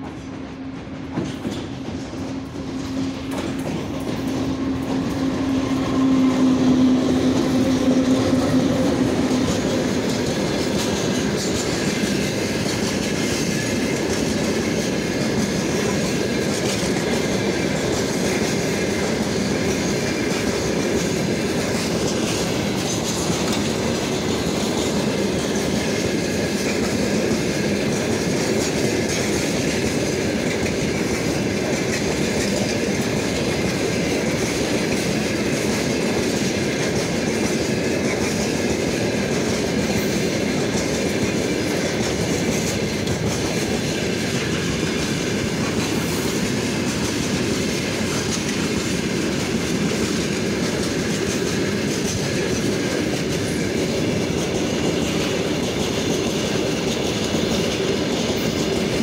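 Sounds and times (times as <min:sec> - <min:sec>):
electric locomotive hum: 0:00.0 - 0:59.0
wagon wheels clickety-clack: 0:00.1 - 0:59.0.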